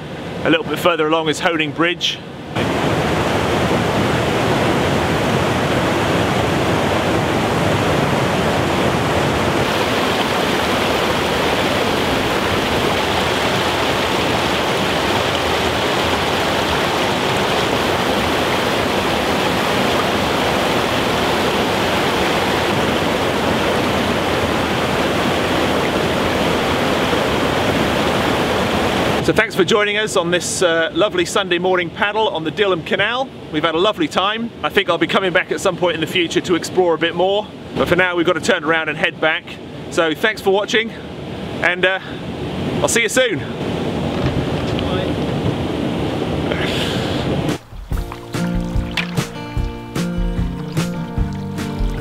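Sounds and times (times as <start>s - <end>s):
water rushing over weir: 1.8s - 29.3s, 41.1s - 52.0s.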